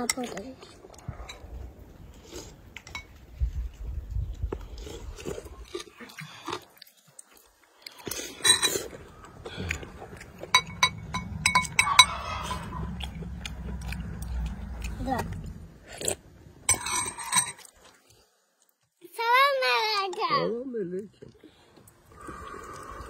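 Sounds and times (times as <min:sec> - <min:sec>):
people chewing: 0:00.0 - 0:19.0, 0:20.1 - 0:23.0
spoons clinking on ceramic bowls: 0:10.5 - 0:12.1, 0:16.7 - 0:17.7.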